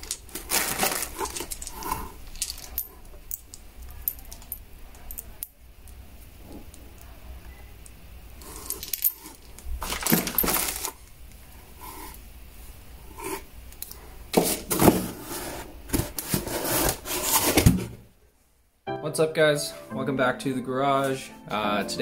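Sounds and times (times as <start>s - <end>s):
plastic bags crinkling: 0.0s - 4.5s, 8.4s - 11.2s
bolts and washers clinking: 0.0s - 5.5s, 8.6s - 10.9s
cardboard box shifting: 0.3s - 2.1s, 14.4s - 18.0s.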